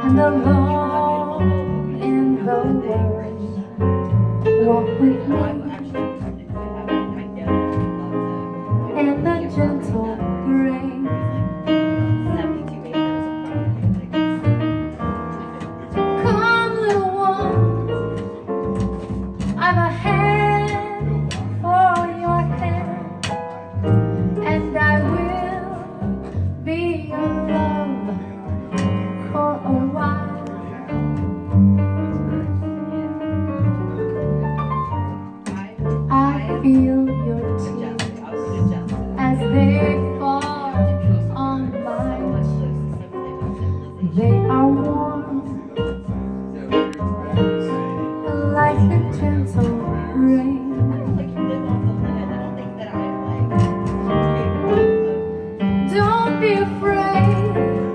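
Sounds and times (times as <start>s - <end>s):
woman singing into a microphone: 0.0s - 3.7s, 4.6s - 6.2s, 8.9s - 11.4s, 16.2s - 17.7s, 19.6s - 23.2s, 24.4s - 28.4s, 29.2s - 30.7s, 36.1s - 42.7s, 44.0s - 45.8s, 48.3s - 51.2s, 55.9s - 57.9s
piano keyboard chords: 0.0s - 57.9s
plucked double bass: 0.0s - 57.9s.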